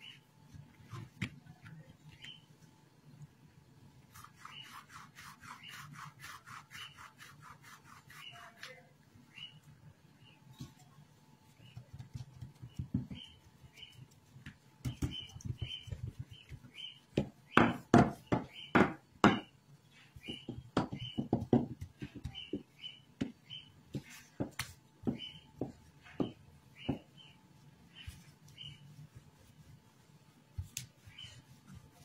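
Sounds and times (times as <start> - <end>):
rolling pin knocking on counter: 20.3 - 22.6.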